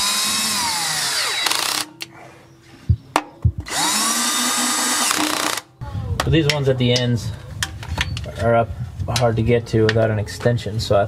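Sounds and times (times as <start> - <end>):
cordless drill motor whining: 0.0 - 1.9, 3.7 - 5.6.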